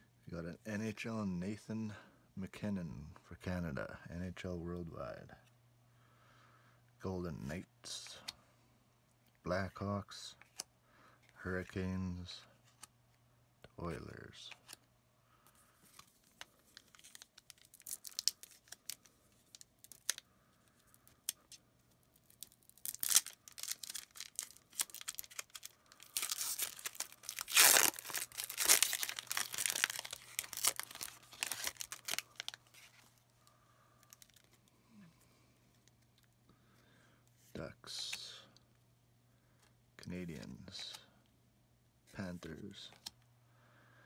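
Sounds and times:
wrapper tearing and crinkling: 0:16.0 - 0:20.2, 0:22.2 - 0:33.1, 0:34.0 - 0:34.6.

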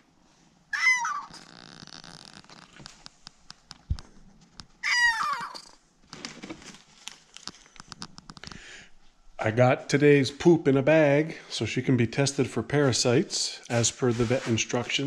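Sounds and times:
kitten meowing: 0:00.8 - 0:01.5, 0:04.8 - 0:05.7.

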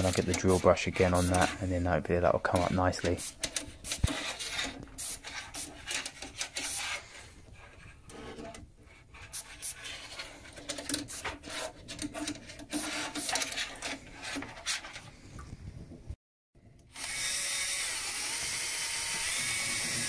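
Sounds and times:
hand sprayer hissing bursts: 0:00.1 - 0:02.0, 0:02.6 - 0:05.8.

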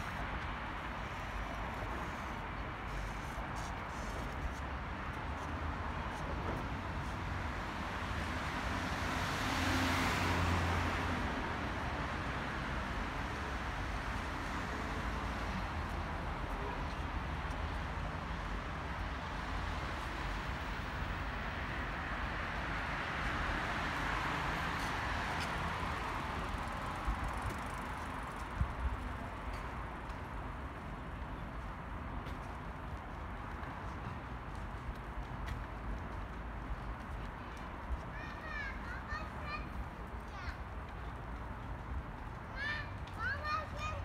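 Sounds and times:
passing cars hiss: 0:00.0 - 0:04.6.

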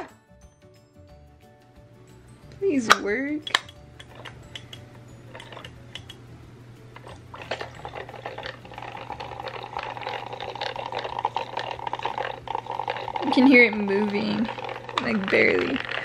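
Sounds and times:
small electric motor rattling whir: 0:07.1 - 0:16.0.

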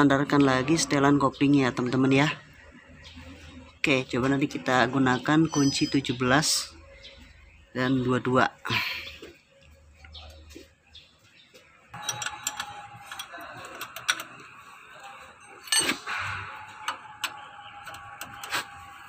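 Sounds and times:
spanners clinking on nuts: 0:12.0 - 0:18.8.

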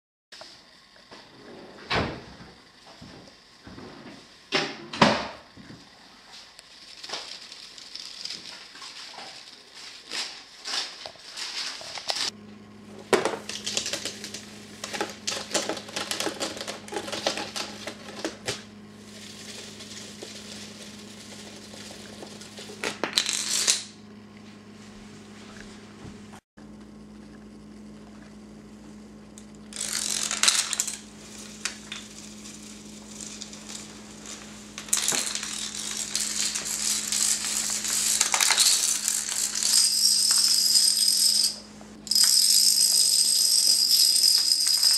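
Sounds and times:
low electrical hum: 0:00.4 - 0:44.9
dominoes clicking and clattering: 0:06.9 - 0:08.6, 0:19.2 - 0:23.9, 0:29.7 - 0:44.9.

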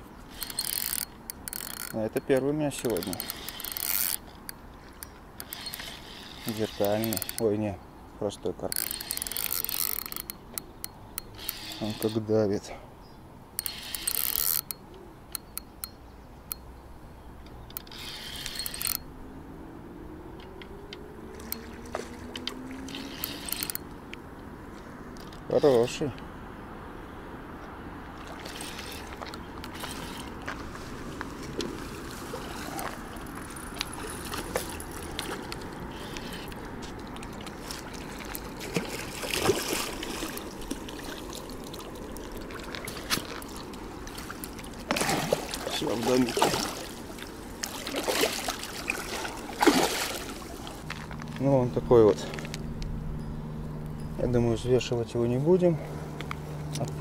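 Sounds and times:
reel clicks: 0:00.2 - 0:07.7, 0:08.6 - 0:12.3, 0:13.5 - 0:16.6, 0:17.4 - 0:19.1, 0:20.4 - 0:24.2, 0:28.2 - 0:30.6, 0:31.5 - 0:40.9
small clicks: 0:00.3 - 0:07.5, 0:17.4 - 0:19.0, 0:20.4 - 0:24.2
fishing reel ratcheting: 0:00.3 - 0:07.7, 0:08.6 - 0:12.3, 0:13.6 - 0:15.7, 0:17.7 - 0:19.1, 0:22.4 - 0:24.0, 0:28.4 - 0:30.4, 0:33.3 - 0:36.6
fish thrashing and splashing water: 0:21.3 - 0:23.6, 0:28.2 - 0:30.4, 0:31.5 - 0:35.8, 0:37.0 - 0:50.8.

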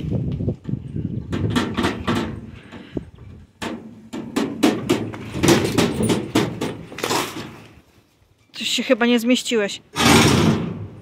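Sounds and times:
trailer rattling and clanking: 0:03.6 - 0:07.6.

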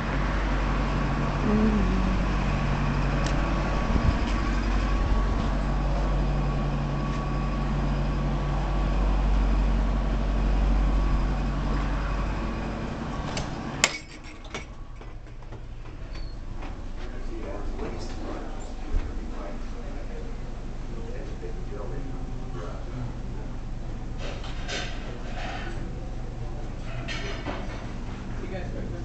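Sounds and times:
low mechanical rumble: 0:00.0 - 0:29.0.

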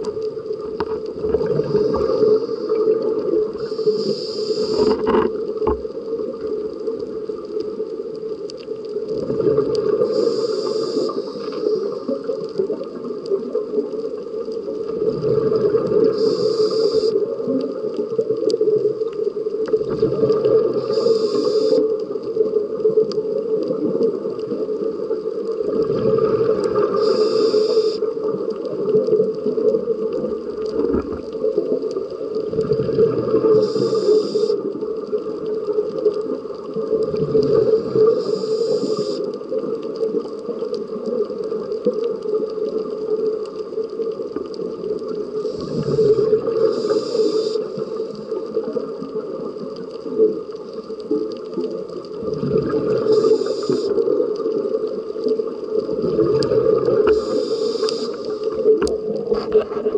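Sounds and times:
exhaled bubbles rumbling underwater: 0:00.0 - 0:59.9
regulator inhalation hiss: 0:01.4 - 0:05.1, 0:09.9 - 0:12.4, 0:16.0 - 0:17.5, 0:20.5 - 0:22.0, 0:26.7 - 0:28.4, 0:33.4 - 0:34.8, 0:37.6 - 0:39.4, 0:45.2 - 0:48.8, 0:53.0 - 0:54.4, 0:56.6 - 0:58.7.

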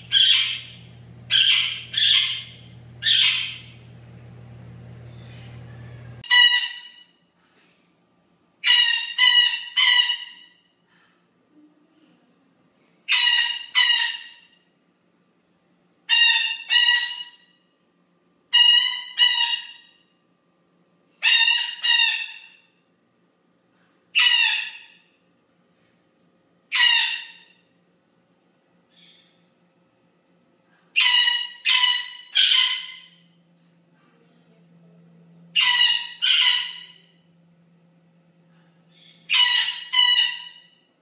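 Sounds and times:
parrot squawking: 0:00.0 - 0:03.8, 0:06.2 - 0:07.1, 0:08.6 - 0:10.6, 0:13.1 - 0:14.5, 0:16.1 - 0:17.5, 0:18.5 - 0:20.0, 0:21.2 - 0:22.6, 0:24.2 - 0:25.0, 0:26.7 - 0:27.6, 0:31.0 - 0:33.3, 0:35.5 - 0:37.2, 0:39.0 - 0:40.8.

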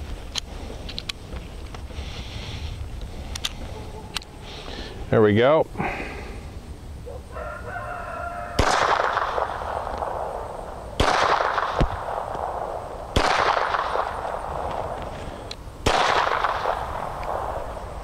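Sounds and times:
pistol shots with echo: 0:08.6 - 0:10.4, 0:11.0 - 0:14.7, 0:15.8 - 0:17.6.

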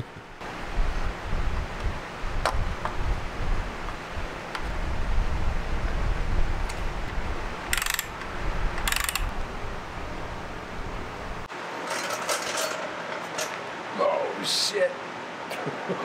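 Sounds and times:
low steady rumble: 0:00.0 - 0:11.5
hand ratchet clicking: 0:07.7 - 0:09.3.

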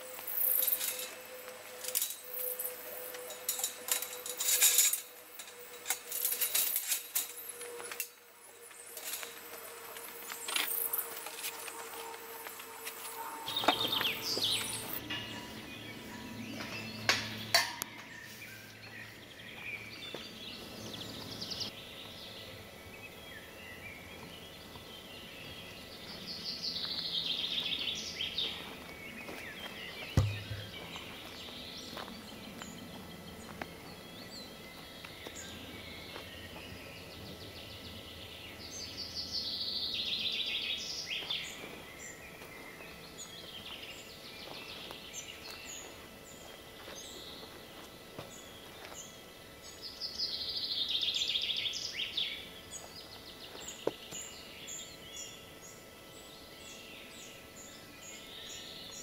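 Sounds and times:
birds chirping: 0:00.0 - 0:59.0
metal gate panels clinking: 0:00.6 - 0:01.2, 0:01.8 - 0:08.2
low thump: 0:30.2 - 0:30.8.

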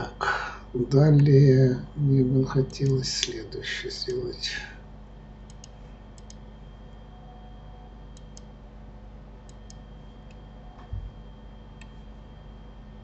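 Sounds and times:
electrical hum: 0:00.0 - 0:13.0
computer mouse clicking: 0:05.4 - 0:06.4, 0:08.1 - 0:08.5, 0:09.4 - 0:10.4, 0:11.8 - 0:12.0.

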